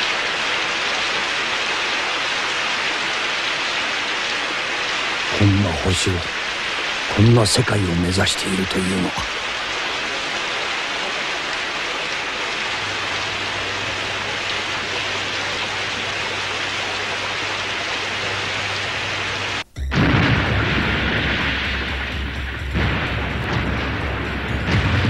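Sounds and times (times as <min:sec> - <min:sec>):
heavy rain hissing: 0:00.0 - 0:25.0
deep explosion rumble: 0:19.8 - 0:25.0.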